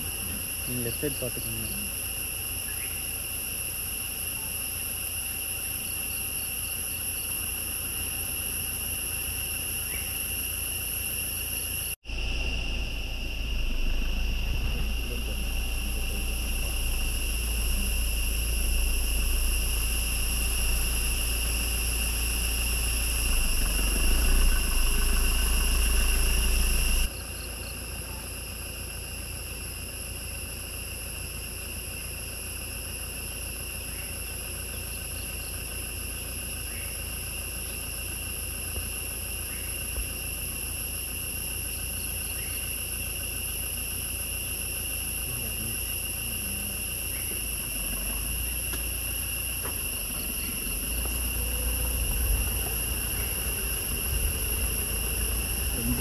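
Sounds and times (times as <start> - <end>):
insects droning: 0.0 - 56.0
low rumble: 12.0 - 27.1, 49.8 - 56.0.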